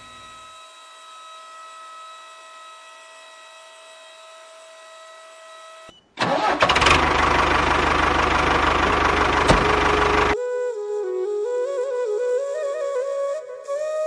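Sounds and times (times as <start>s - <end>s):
tractor engine running: 6.2s - 10.4s.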